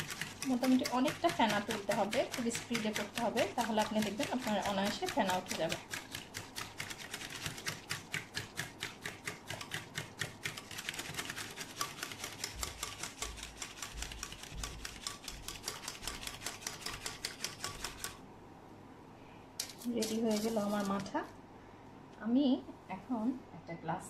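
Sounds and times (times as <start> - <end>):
hand whisk clicking against bowl: 0.0 - 18.2.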